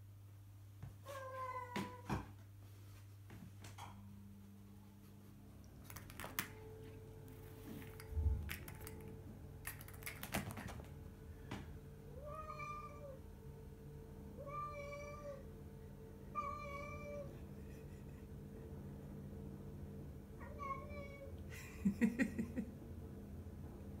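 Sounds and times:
cat meowing: 0:12.2 - 0:13.2, 0:14.4 - 0:15.4, 0:16.4 - 0:17.3.

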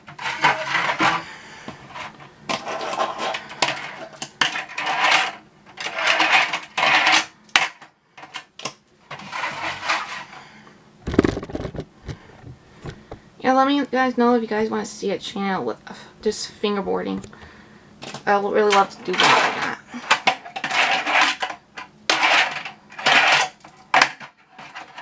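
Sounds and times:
plastic rubbing and sliding: 0:00.0 - 0:07.3, 0:09.1 - 0:10.4, 0:11.0 - 0:13.2, 0:19.0 - 0:25.0.

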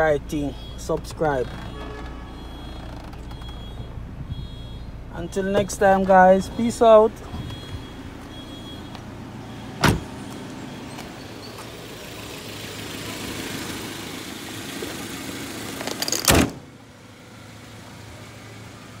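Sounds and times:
car engine idling: 0:00.0 - 0:19.0
car hood slamming: 0:09.8 - 0:10.2, 0:16.2 - 0:16.6.

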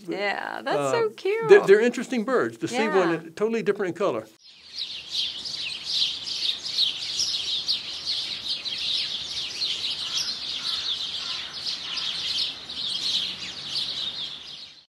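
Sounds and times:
songbirds chirping and twittering: 0:04.3 - 0:14.9.

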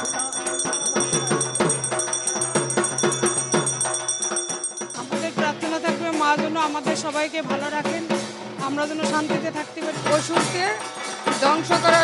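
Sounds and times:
high bell-like ringing tones: 0:00.0 - 0:05.4
quick steady drum beat: 0:00.0 - 0:12.0.

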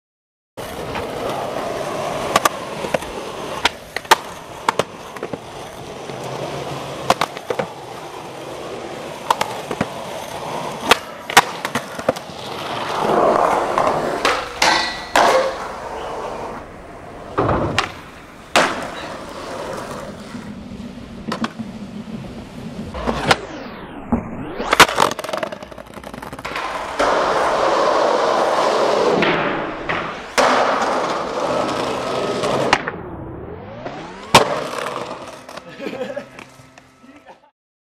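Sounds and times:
skateboard wheels rolling: 0:00.6 - 0:37.5
skateboard clacking on ground: 0:00.8 - 0:07.8, 0:10.8 - 0:16.3, 0:17.3 - 0:20.1, 0:21.2 - 0:21.7, 0:24.8 - 0:28.0.

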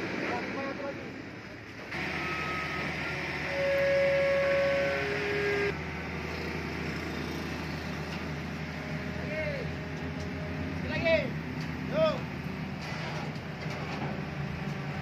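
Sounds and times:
crane engine running: 0:00.0 - 0:15.0
steady whine: 0:01.7 - 0:05.8.

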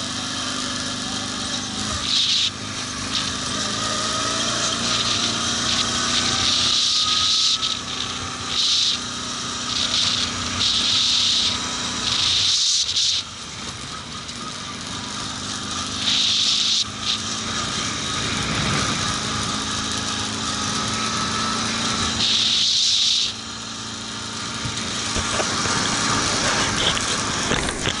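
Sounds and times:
atv engine running: 0:00.0 - 0:28.0
loud hiss bursts: 0:22.2 - 0:23.4.

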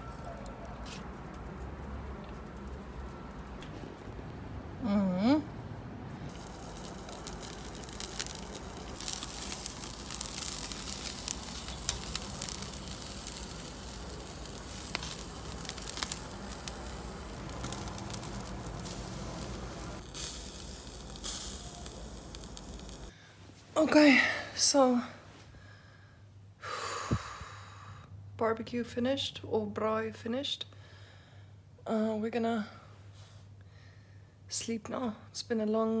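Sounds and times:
crackles and pops: 0:06.3 - 0:23.1
meat sizzling on grill: 0:06.3 - 0:23.1.

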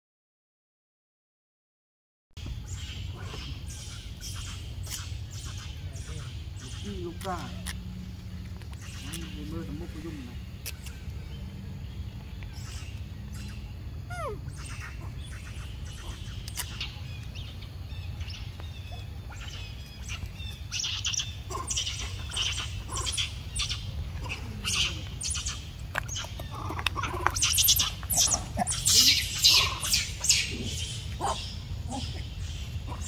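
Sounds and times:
birds chirping: 0:02.4 - 0:33.0
steady low rumble: 0:02.4 - 0:33.0.

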